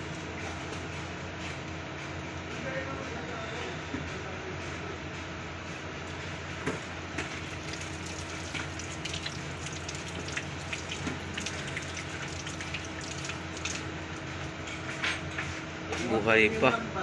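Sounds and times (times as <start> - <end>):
steady low hum: 0.0 - 17.0
fish splashing in water: 7.2 - 14.4.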